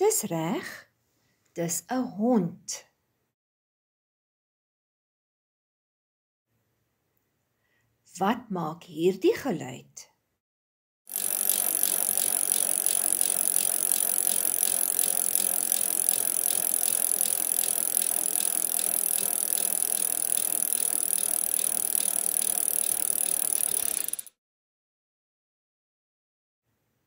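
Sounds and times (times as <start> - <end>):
bicycle ticking and rattling: 11.1 - 24.4.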